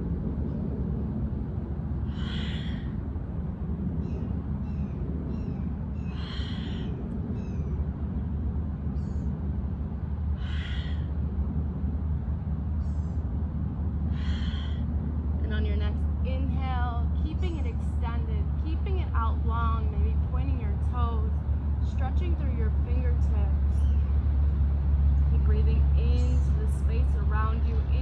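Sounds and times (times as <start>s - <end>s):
low outdoor rumble: 0.0s - 28.0s
person breathing: 14.1s - 14.9s.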